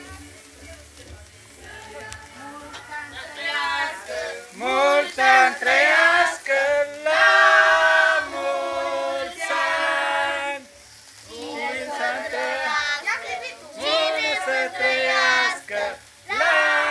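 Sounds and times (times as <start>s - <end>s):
group singing without accompaniment: 1.5s - 16.9s.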